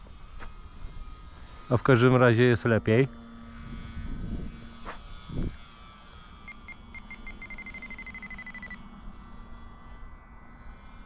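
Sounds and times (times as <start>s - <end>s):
electric motor drone: 0.0s - 11.0s
radio transmitter beeping: 6.5s - 8.8s.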